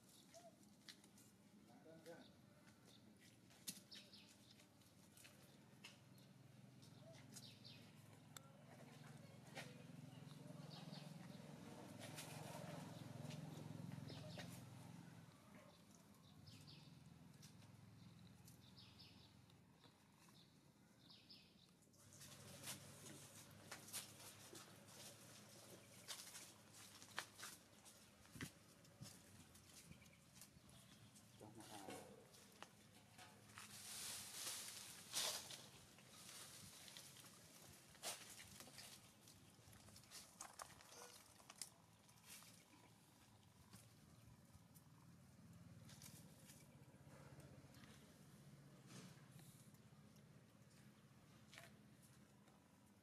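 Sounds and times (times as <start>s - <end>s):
rustles on dry leaves: 33.4s - 39.2s.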